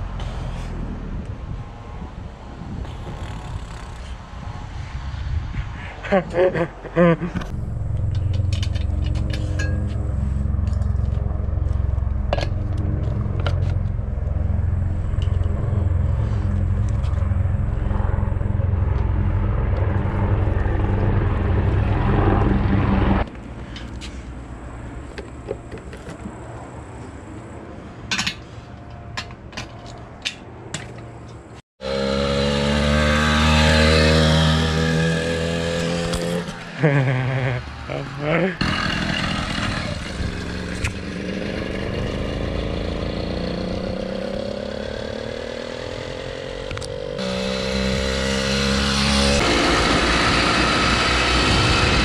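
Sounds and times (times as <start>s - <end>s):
small two-stroke engine: 31.8s - 52.0s.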